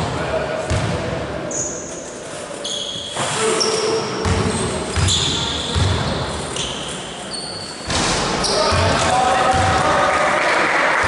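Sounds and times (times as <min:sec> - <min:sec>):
sneakers squeaking on court: 0:00.0 - 0:09.8
basketball bouncing on floor: 0:04.2 - 0:06.2, 0:08.7 - 0:09.8.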